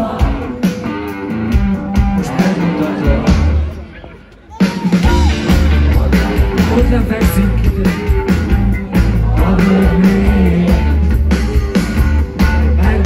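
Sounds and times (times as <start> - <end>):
loud drums: 0.0 - 13.0
electric guitars: 4.6 - 13.0
heavy bass: 4.8 - 13.0.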